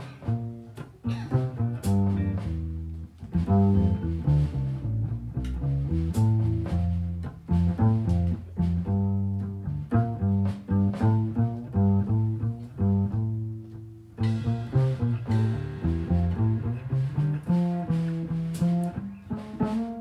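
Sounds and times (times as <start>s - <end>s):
light drums: 0.0s - 20.0s
plucked double bass: 0.0s - 20.0s.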